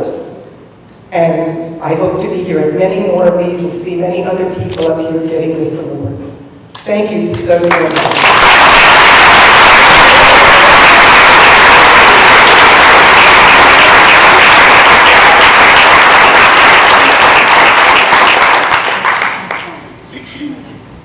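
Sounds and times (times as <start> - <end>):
audience applauding: 7.6 - 19.8.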